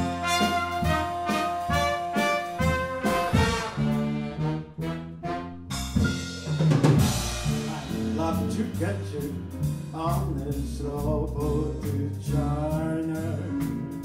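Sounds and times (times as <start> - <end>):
trumpets and trombone: 0.0 - 8.2
bass and drums: 0.0 - 14.0.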